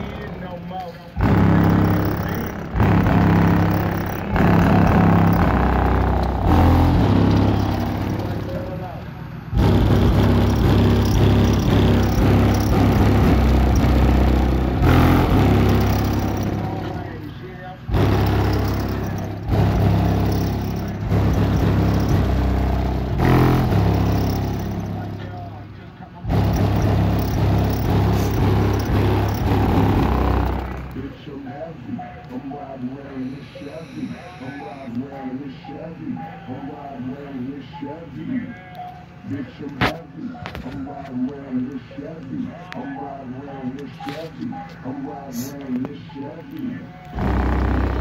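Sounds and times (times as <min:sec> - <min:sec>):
deep bass of rap music from car: 0:00.0 - 0:20.3.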